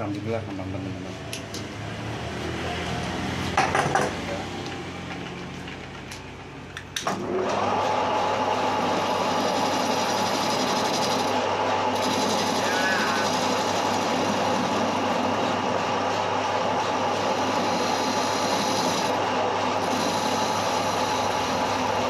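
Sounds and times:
lathe running whine: 7.2 - 22.0.

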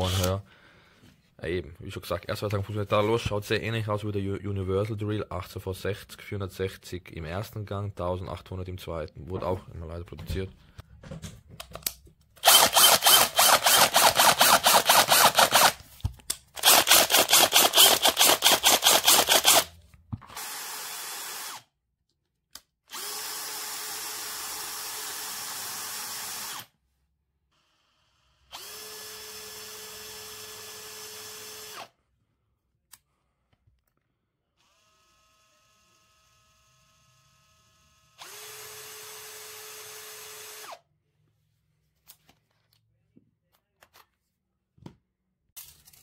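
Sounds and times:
cordless drill running: 0.0 - 0.4, 12.4 - 15.8, 16.6 - 19.7, 20.3 - 21.6, 22.9 - 26.7, 27.6 - 31.9, 34.6 - 40.8.

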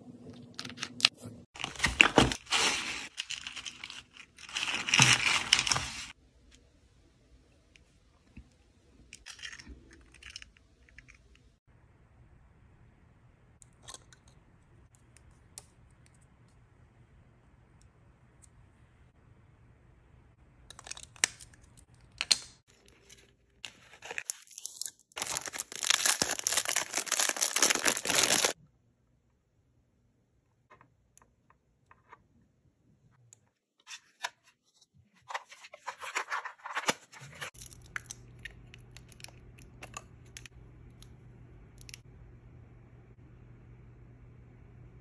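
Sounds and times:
packaging tearing and crinkling: 23.6 - 28.6
packaging clicks: 24.0 - 28.6.

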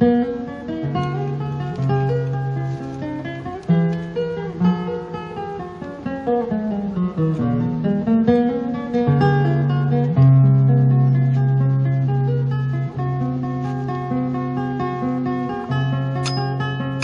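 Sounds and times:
guitar plucking melody: 0.0 - 17.0.

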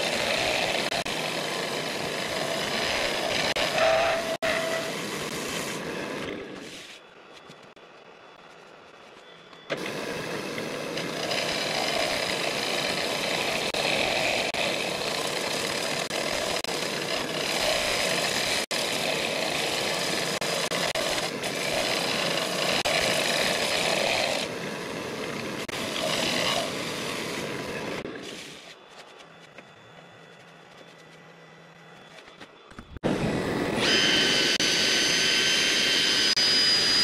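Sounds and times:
lathe tool cutting wood: 0.0 - 5.8, 9.8 - 24.6, 25.2 - 28.0, 33.0 - 37.0.

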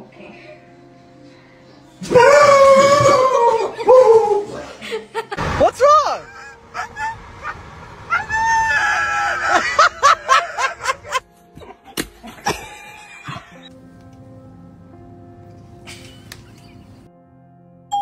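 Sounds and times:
soft music with held notes: 0.0 - 5.4, 11.2 - 18.0
dog howling: 2.0 - 4.8.

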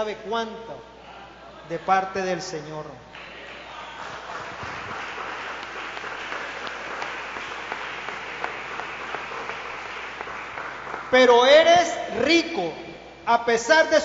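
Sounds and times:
man preaching: 0.0 - 0.9, 1.6 - 3.1, 11.1 - 14.0
congregation applauding: 3.1 - 11.9.

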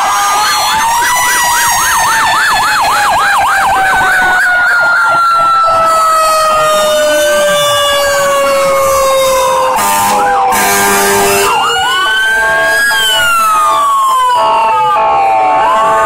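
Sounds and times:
fire engine sirens wailing: 0.0 - 16.0
siren yelp: 0.0 - 16.0
horn blast: 8.8 - 11.6.

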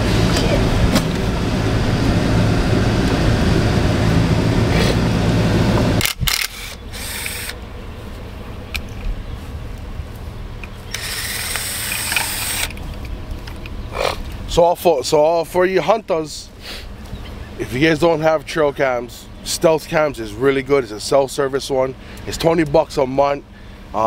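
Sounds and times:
truck rumble from inside cab: 0.0 - 6.0
cordless drill driving a screw: 6.0 - 7.6, 10.9 - 12.8.

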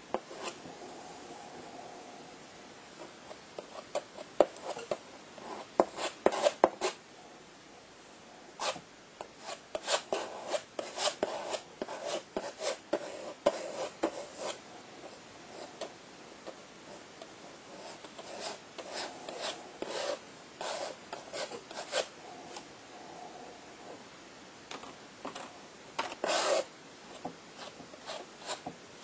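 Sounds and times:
palette knife scraping paint: 3.6 - 7.0, 9.4 - 14.6, 17.7 - 22.1, 26.0 - 28.7.

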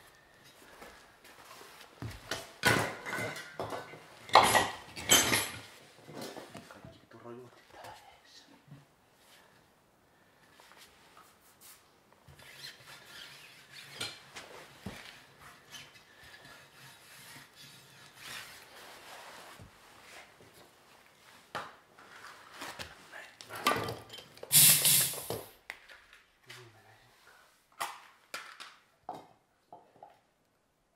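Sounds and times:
loud air hiss: 24.5 - 25.5.

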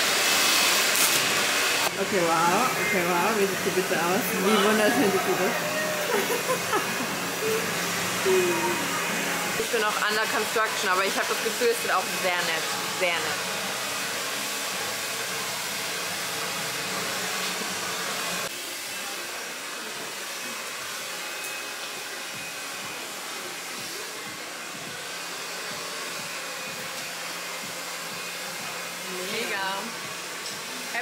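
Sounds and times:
hair dryer blowing: 0.0 - 31.0.

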